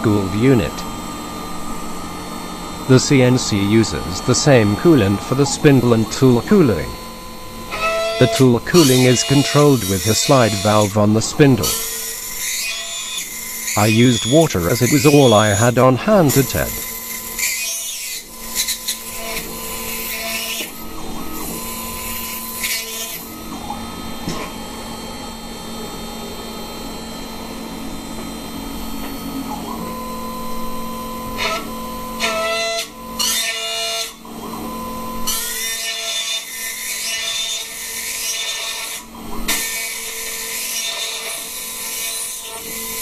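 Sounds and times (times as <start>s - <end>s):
spindle whine: 0.0s - 17.4s, 23.2s - 32.2s
cutter cutting metal: 0.0s - 27.6s, 28.2s - 43.0s.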